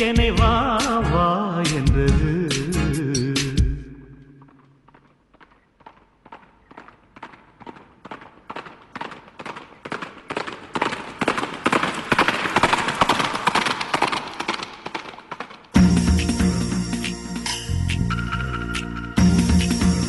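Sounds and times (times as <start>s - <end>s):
music: 0.0s - 3.8s, 15.8s - 20.0s
bicycle rattling over bumps: 4.9s - 15.8s.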